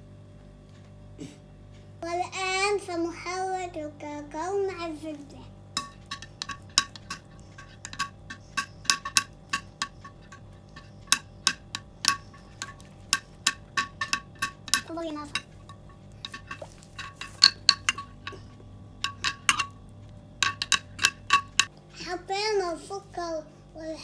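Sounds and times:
metal spoon clinking against glass: 5.8s - 19.8s, 20.4s - 21.7s.

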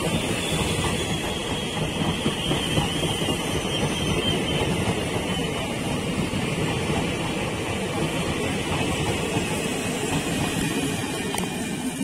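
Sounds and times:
train wheels rumbling on rails: 0.0s - 12.0s.

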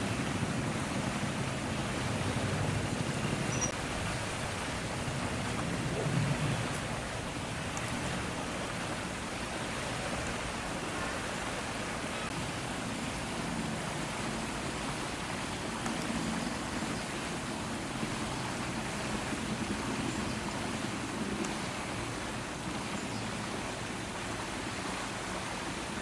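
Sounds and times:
strong wind blowing: 0.0s - 10.1s.

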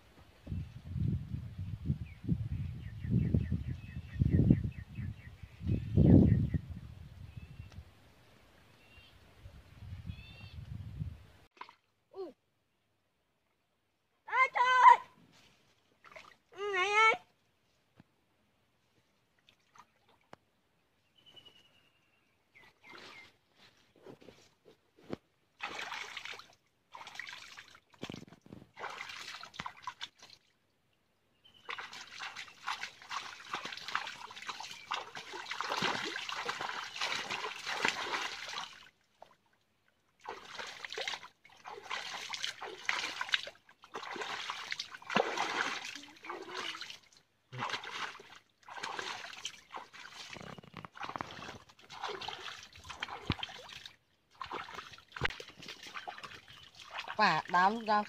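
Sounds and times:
water splashing around wading person: 15.5s - 16.5s, 25.6s - 30.6s, 31.6s - 39.5s, 40.2s - 58.0s.

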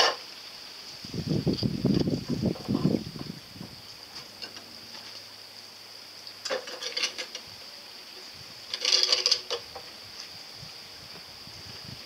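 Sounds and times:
plastic kayak scraping on concrete: 8.7s - 9.8s.

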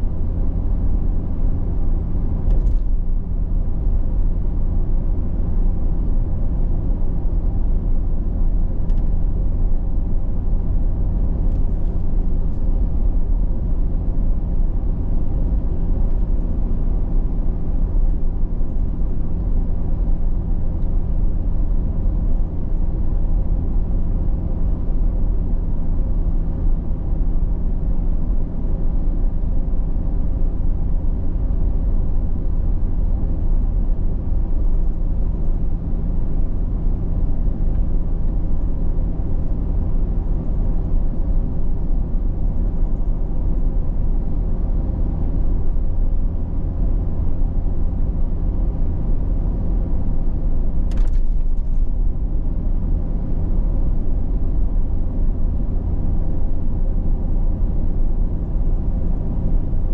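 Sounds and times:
car engine drone: 0.0s - 59.9s
brief click: 50.9s - 51.9s.

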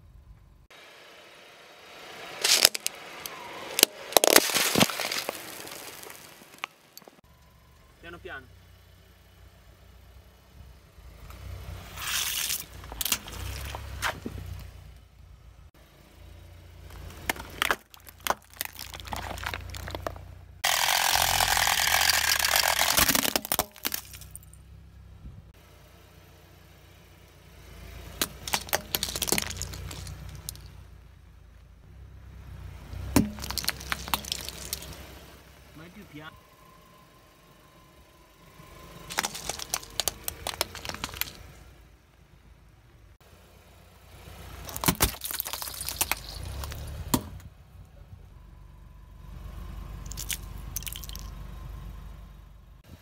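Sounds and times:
car low hum: 0.0s - 53.0s
plastic blocks crunching: 2.4s - 3.0s, 3.8s - 7.2s, 17.2s - 24.4s, 28.2s - 30.7s, 33.2s - 35.0s, 39.1s - 41.5s, 44.6s - 46.9s, 50.0s - 51.3s
plastic toys crackling under tyre: 2.4s - 3.0s, 3.8s - 7.2s, 16.9s - 24.5s, 28.2s - 30.7s, 33.2s - 35.0s, 39.0s - 41.6s, 44.6s - 47.0s, 50.0s - 51.3s.

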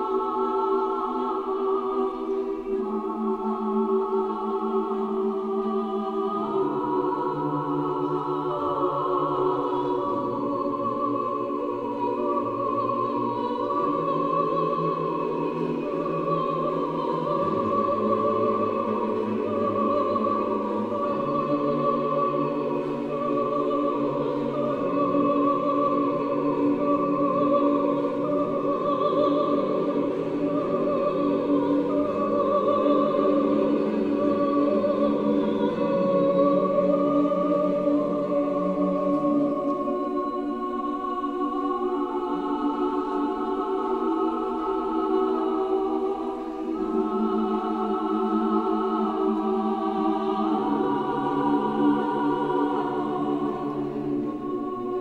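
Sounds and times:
choir singing sustained chords: 0.0s - 55.0s.

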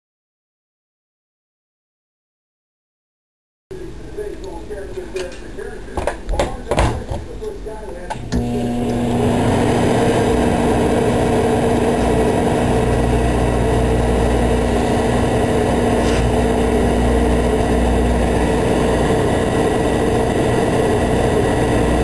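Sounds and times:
microwave oven humming: 8.1s - 22.0s.

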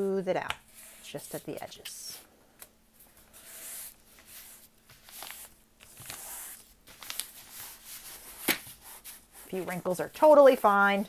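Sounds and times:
hands smoothing paper: 0.7s - 2.2s, 3.1s - 11.0s
paper crinkling: 3.8s - 9.2s.

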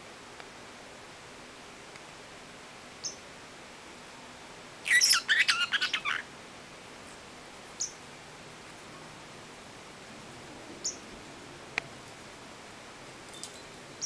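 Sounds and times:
parrot chirping: 4.8s - 6.2s.

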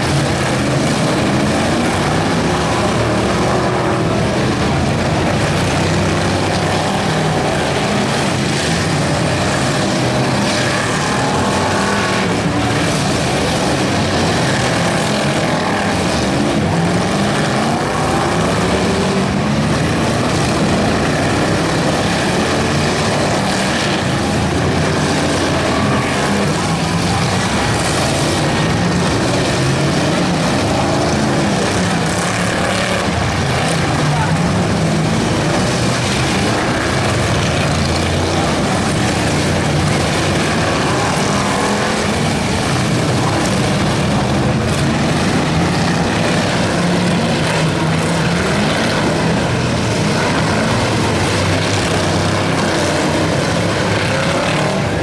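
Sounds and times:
stock car engines running hard: 0.0s - 55.0s.

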